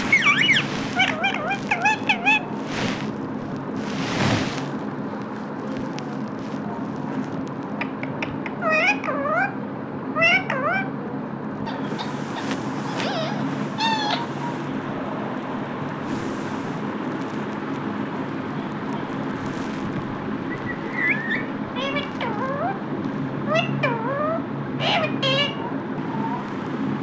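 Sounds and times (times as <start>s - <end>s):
parakeet squeaky chattering calls: 0.0s - 3.1s, 7.8s - 9.6s, 10.2s - 10.9s, 11.6s - 14.8s, 20.5s - 22.8s, 23.5s - 26.4s
steady low hum: 0.0s - 27.0s.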